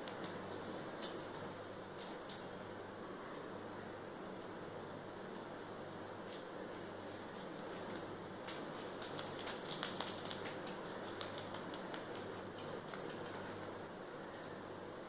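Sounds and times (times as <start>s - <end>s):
rabbits crunching corn husk: 6.2s - 14.5s.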